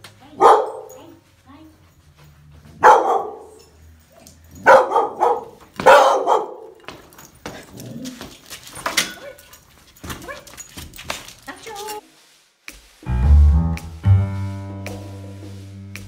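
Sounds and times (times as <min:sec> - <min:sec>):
dog barking: 0:00.4 - 0:01.1, 0:02.7 - 0:03.6, 0:04.6 - 0:06.8
dog scuffling on wood floor: 0:06.8 - 0:12.9.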